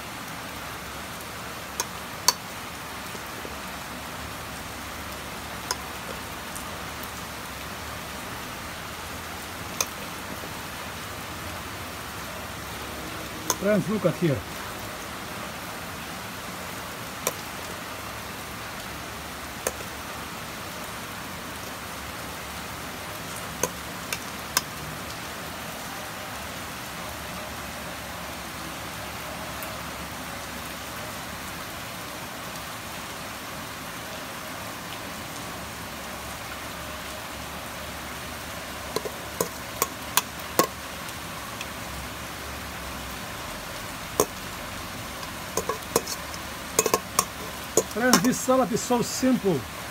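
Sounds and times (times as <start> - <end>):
steady hiss: 0.0 - 25.4, 38.0 - 49.9
kitchenware clicking: 45.6 - 48.4.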